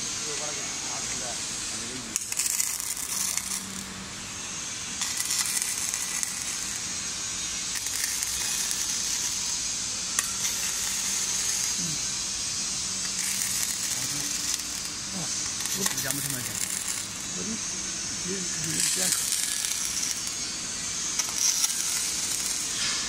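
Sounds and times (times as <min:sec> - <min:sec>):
welding arc crackling: 0:00.0 - 0:23.0.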